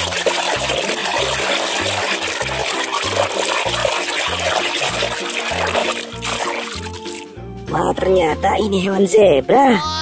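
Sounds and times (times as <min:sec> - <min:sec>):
water sloshing in a basin: 0:00.0 - 0:07.4.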